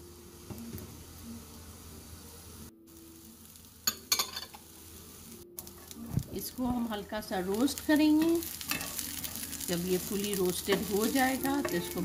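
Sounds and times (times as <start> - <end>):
garlic sizzling in a pan: 0.0 - 12.0
chillies pattering into a pan: 5.6 - 12.0.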